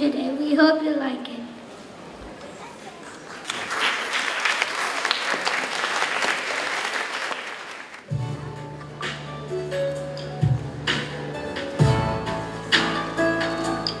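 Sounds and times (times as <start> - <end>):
audience clapping: 2.8 - 8.1.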